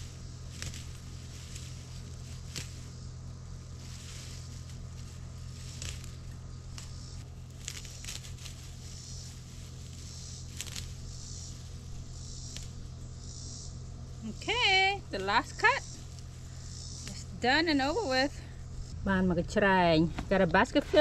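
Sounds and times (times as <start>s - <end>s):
leafy stems rustling: 0.0s - 19.1s
steady low hum: 0.0s - 21.0s
stems being snipped: 0.5s - 2.9s, 4.0s - 8.8s, 10.0s - 11.7s, 12.4s - 12.8s.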